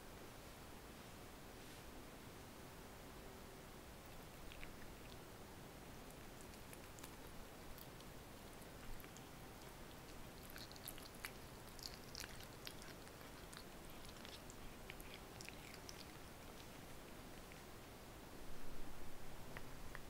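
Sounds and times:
cat chewing meat: 0:04.0 - 0:17.8.

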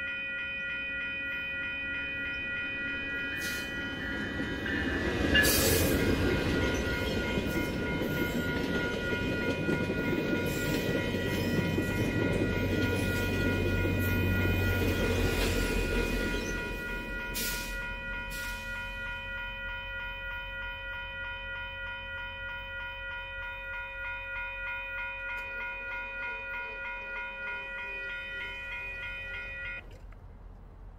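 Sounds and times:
crossing warning bell ringing: 0:00.0 - 0:30.0
train wheels rumbling on rails: 0:02.6 - 0:19.3
rail joint clicks: 0:03.3 - 0:19.1, 0:25.0 - 0:30.9.

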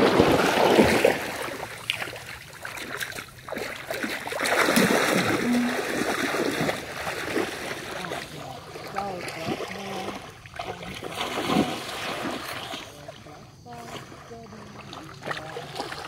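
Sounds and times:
water splashing in stream: 0:00.0 - 0:16.0.

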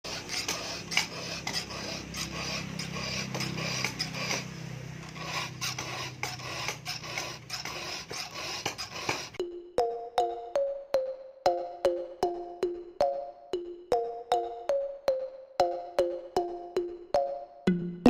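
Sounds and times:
file rasping on chainsaw chain: 0:00.0 - 0:09.4.

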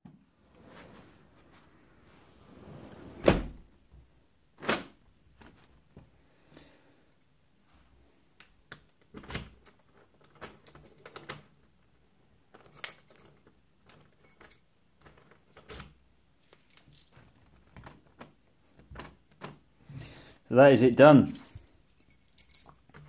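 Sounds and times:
door lock clicks and clunks: 0:04.6 - 0:05.0.

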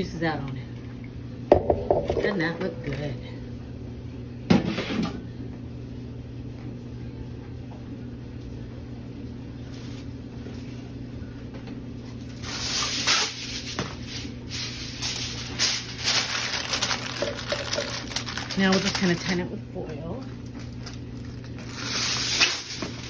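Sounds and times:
steady low hum: 0:00.0 - 0:23.0
aluminium foil crinkling: 0:12.2 - 0:19.6, 0:20.2 - 0:23.0.

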